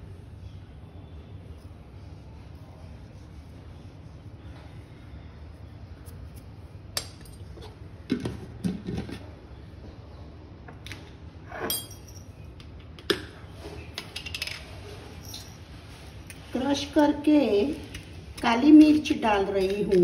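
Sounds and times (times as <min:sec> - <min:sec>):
low steady hum: 0:00.0 - 0:20.0
kitchen utensils clinking: 0:11.6 - 0:12.4.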